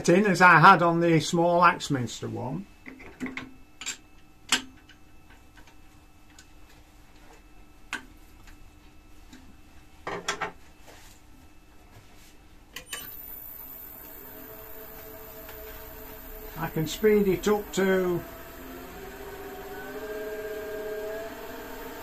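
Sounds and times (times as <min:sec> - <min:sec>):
lathe motor humming and whining: 0:13.0 - 0:22.0.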